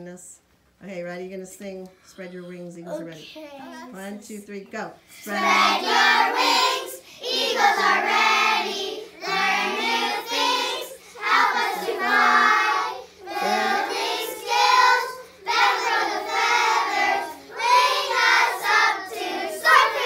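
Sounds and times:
children singing in unison: 5.2 - 20.0.

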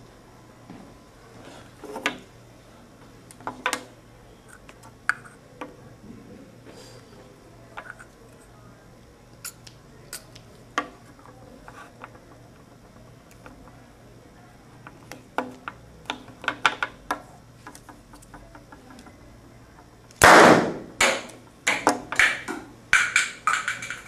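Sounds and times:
film canister bang: 20.2 - 21.3.

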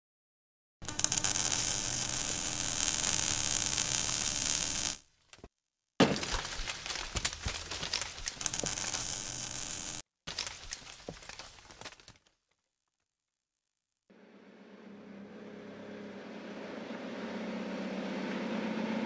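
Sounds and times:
crackling and clinking glass: 0.8 - 5.0, 8.4 - 10.0
low hum: 0.8 - 5.0
electric buzz and crackle: 0.8 - 5.1, 7.9 - 10.0.

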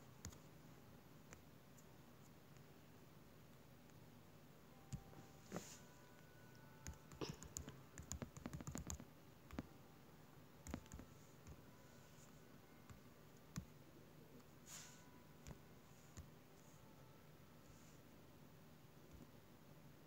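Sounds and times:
touchscreen typing clicks: 6.1 - 9.7, 10.6 - 11.6.

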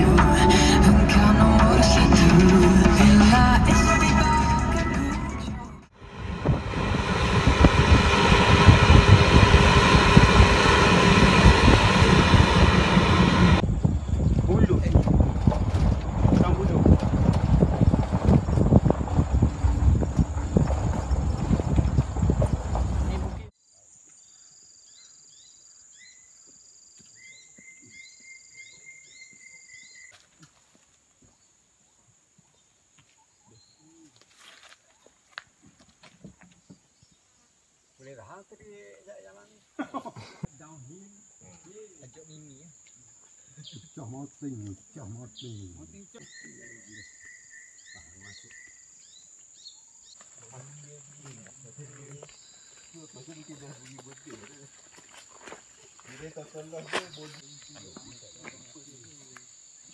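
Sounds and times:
held steady call: 5.9 - 13.6
short rising chirps: 5.9 - 13.6
road traffic hum: 5.9 - 14.2, 15.1 - 23.5
wind buffeting microphone: 6.0 - 23.5
high insect whine: 6.0 - 30.1, 37.6 - 59.9.

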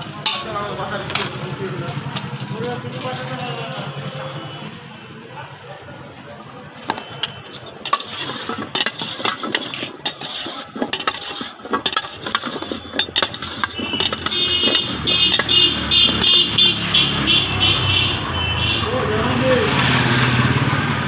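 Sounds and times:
knife tapping steel bowl: 0.0 - 0.6, 6.9 - 16.8
vehicle engine: 0.0 - 4.4, 6.7 - 21.0.

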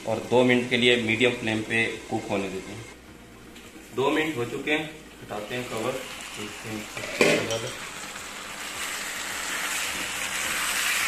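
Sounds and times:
chicken sizzling in a pan: 5.4 - 11.0.

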